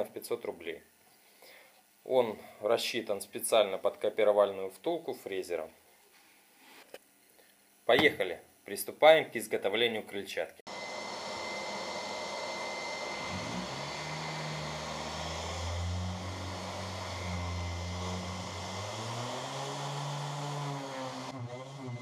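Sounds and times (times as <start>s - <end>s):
orbital sander running: 10.7s - 22.0s.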